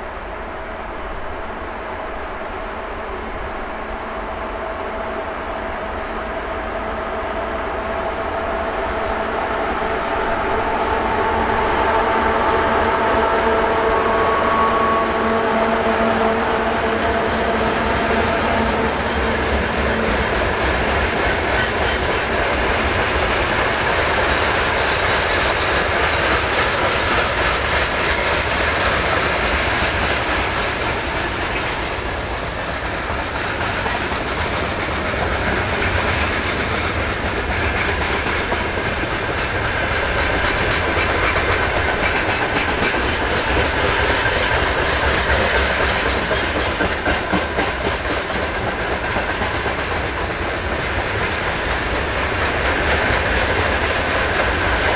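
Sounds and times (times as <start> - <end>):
freight train wheels clattering: 16.0 - 54.9.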